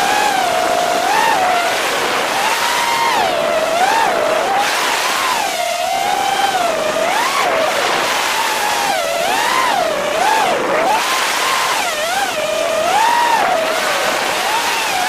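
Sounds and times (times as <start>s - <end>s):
quadcopter motors whining: 0.0s - 15.0s.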